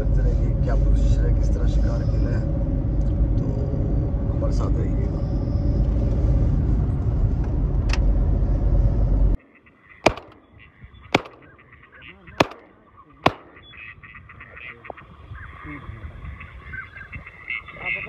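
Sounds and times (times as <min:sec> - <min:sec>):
car road rumble: 0:00.0 - 0:09.4
faint waterfowl calls: 0:09.4 - 0:18.0
shotgun firing: 0:10.0 - 0:10.5, 0:11.2 - 0:11.6, 0:12.4 - 0:13.8.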